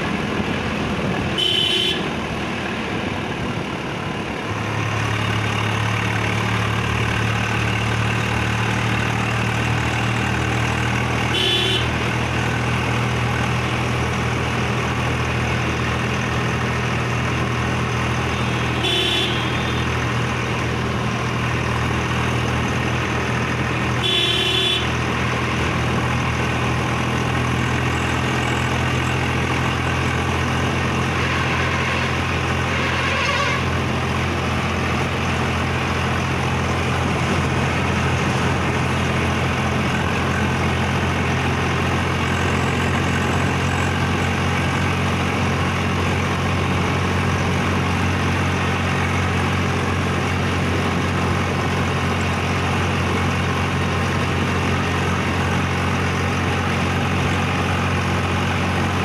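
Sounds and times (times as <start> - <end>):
tractor diesel engine running: 0.0 - 59.0
horn honking: 1.3 - 2.2, 11.2 - 12.2, 18.2 - 20.1, 23.9 - 25.1, 31.0 - 34.0.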